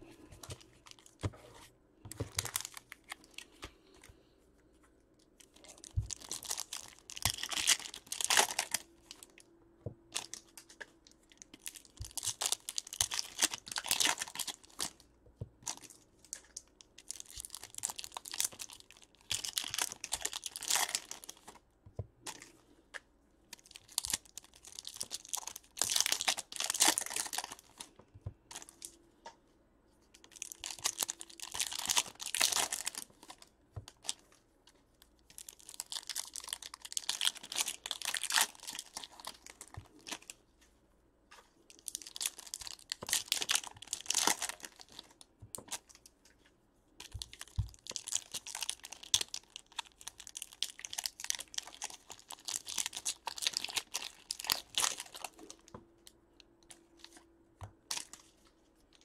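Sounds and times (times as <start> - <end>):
card pack wrappers tearing and crinkling: 5.4 - 9.3, 11.5 - 15.0, 15.7 - 21.6, 23.5 - 27.9, 30.2 - 34.2, 35.3 - 40.3, 41.7 - 46.0, 47.0 - 55.6.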